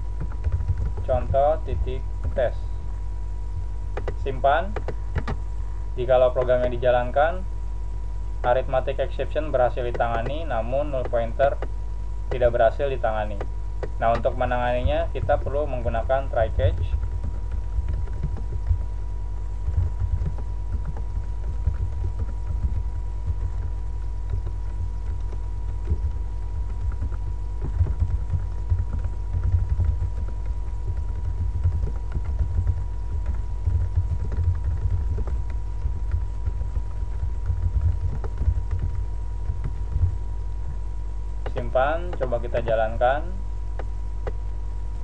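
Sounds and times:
faint high whine: 0.0 - 45.0
steady low hum: 0.0 - 45.0
typing on a keyboard: 0.2 - 1.5, 4.0 - 5.4, 9.8 - 11.7, 15.2 - 18.9, 19.6 - 40.8.

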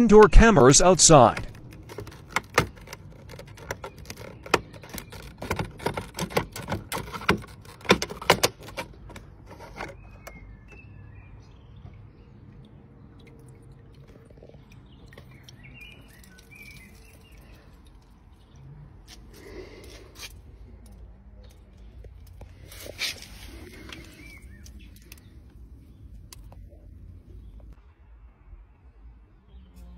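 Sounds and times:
plastic cover clicking and scraping: 1.4 - 10.5.

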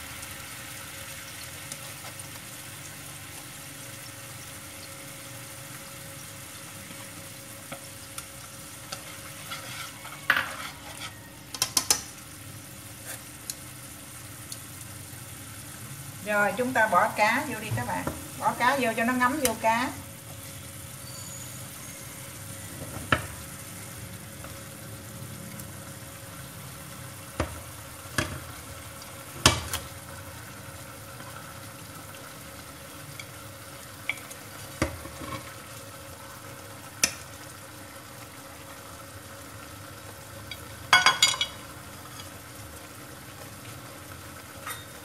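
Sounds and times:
sauce sizzling in a frying pan: 0.0 - 45.0
chopsticks clicking on plate and pan: 11.5 - 12.1, 37.0 - 37.2.

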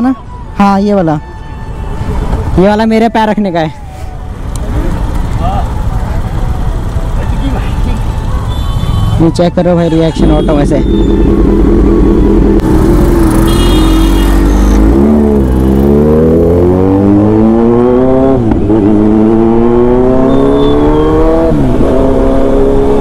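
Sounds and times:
motorcycle engine accelerating: 10.7 - 23.0.

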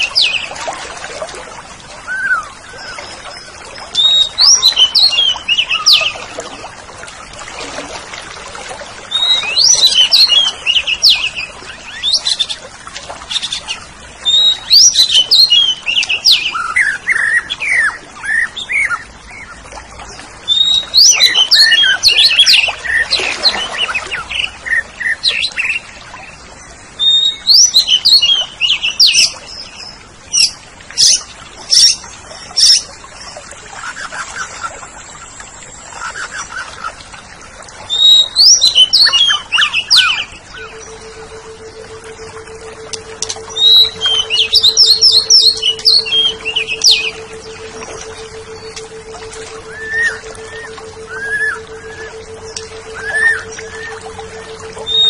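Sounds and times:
thrush singing whistled notes: 2.0 - 6.2, 9.1 - 12.6, 13.3 - 19.6, 20.5 - 25.8, 27.0 - 32.0, 37.8 - 55.0.

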